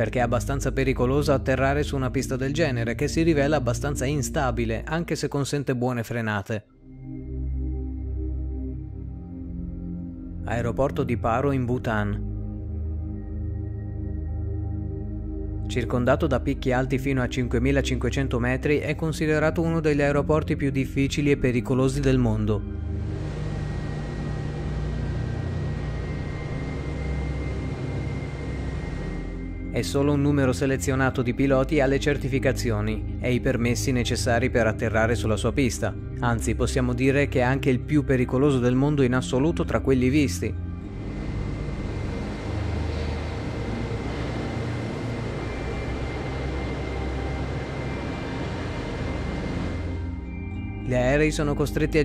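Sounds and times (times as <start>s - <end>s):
thin high whine: 22.6s - 31.0s, 40.8s - 50.8s
jet engines droning in cabin: 22.7s - 30.0s, 40.8s - 50.5s.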